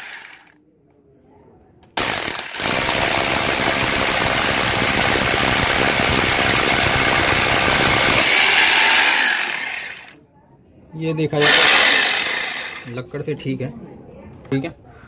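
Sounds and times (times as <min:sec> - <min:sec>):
hammer drill boring into brick: 0:00.0 - 0:00.5, 0:02.0 - 0:10.1, 0:11.4 - 0:12.9.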